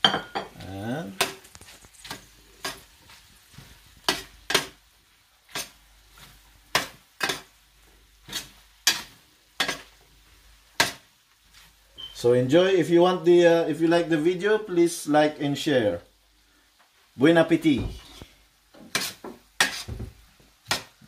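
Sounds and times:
metal spoon scraping a skillet: 0.1s - 4.8s, 5.5s - 7.6s, 8.2s - 10.0s, 18.0s - 20.0s.

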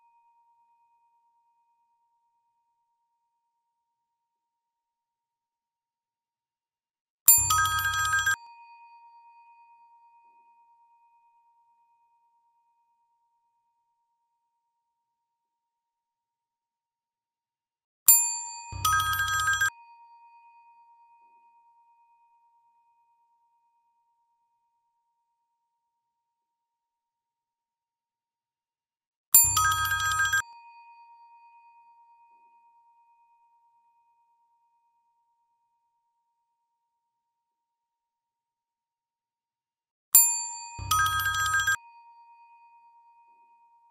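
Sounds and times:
clear pulsing bell tone: 40.2s - 43.9s
bell ringing with rattling clang: 40.8s - 41.8s.

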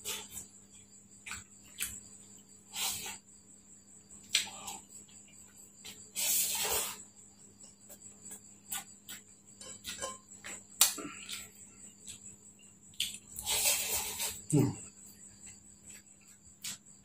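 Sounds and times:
chewing and lip smacks: 12.9s - 13.4s.

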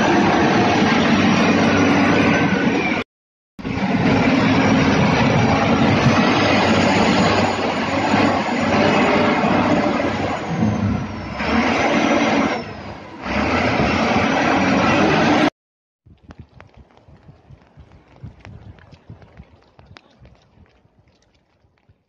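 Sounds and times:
wheel loader diesel engine: 0.0s - 3.0s, 3.6s - 15.5s.

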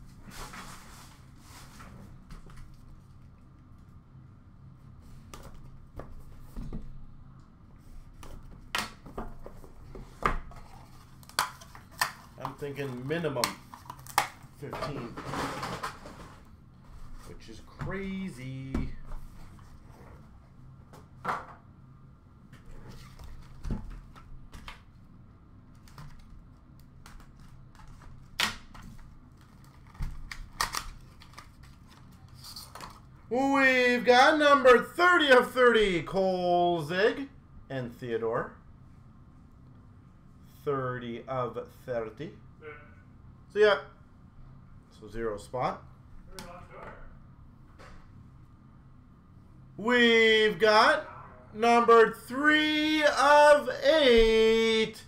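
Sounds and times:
cardboard and plastic packaging clicks: 25.8s - 32.0s.

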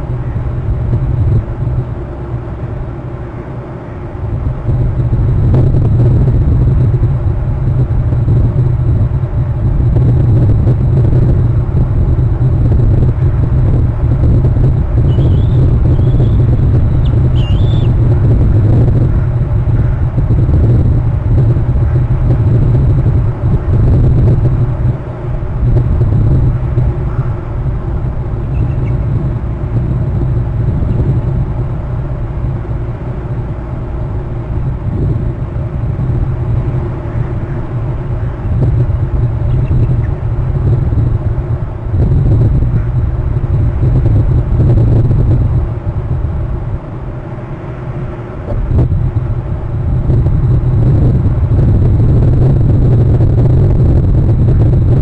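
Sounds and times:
wind buffeting microphone: 0.0s - 55.0s
faint high eagle calls: 17.0s - 17.9s.

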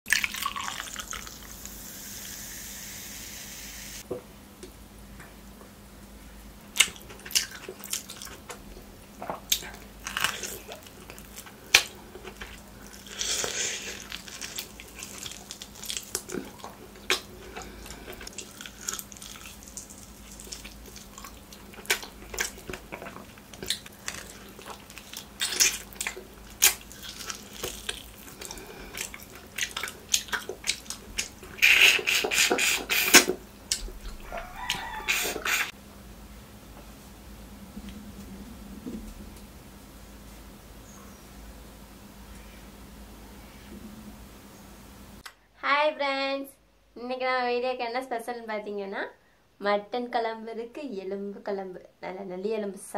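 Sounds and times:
person chewing meat: 6.7s - 35.7s.

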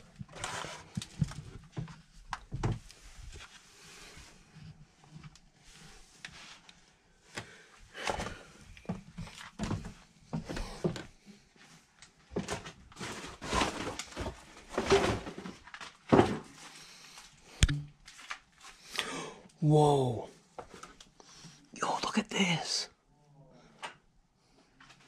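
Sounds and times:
footsteps on wooden stairs: 8.1s - 11.2s.

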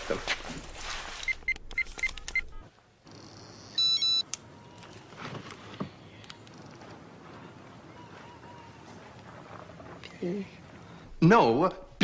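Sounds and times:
phone keypad beeping: 1.3s - 2.6s, 3.8s - 4.3s.

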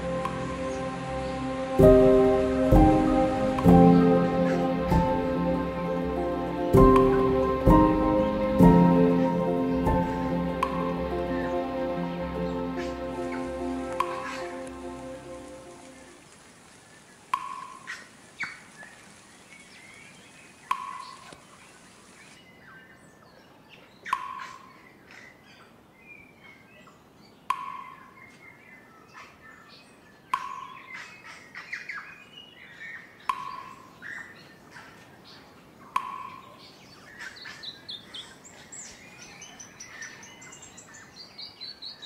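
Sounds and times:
soft bird chirps: 16.8s - 42.0s.

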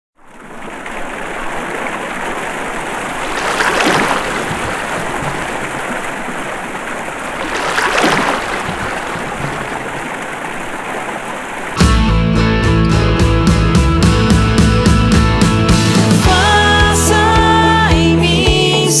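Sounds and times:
flowing water: 0.2s - 11.8s
water splash: 0.2s - 11.8s.

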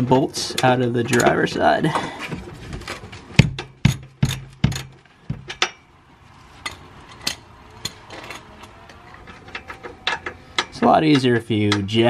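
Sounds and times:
wrench clicking: 9.3s - 11.9s.

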